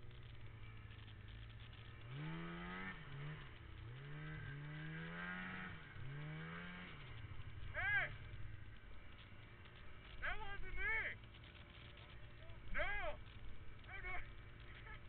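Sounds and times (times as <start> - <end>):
snowmobile engine idling and revving: 0.0 - 15.0.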